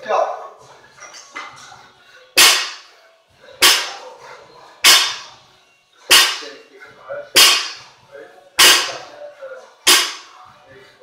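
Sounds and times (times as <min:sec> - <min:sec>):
barbell striking gym floor: 0:02.4 - 0:02.9, 0:03.6 - 0:04.0, 0:04.8 - 0:05.4, 0:06.1 - 0:06.6, 0:07.4 - 0:07.9, 0:08.6 - 0:09.1, 0:09.9 - 0:10.4.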